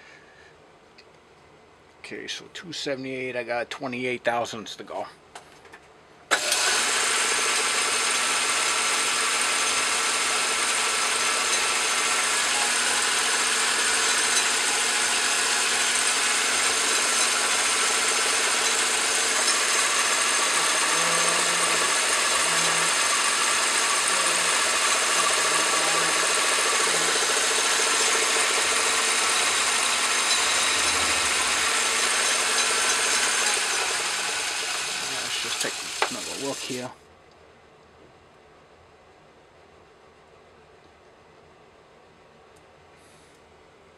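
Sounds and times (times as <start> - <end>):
lathe knocks stopping: 6.3 - 36.7
metal lathe whining: 6.3 - 36.8
cutting hiss: 6.3 - 36.9.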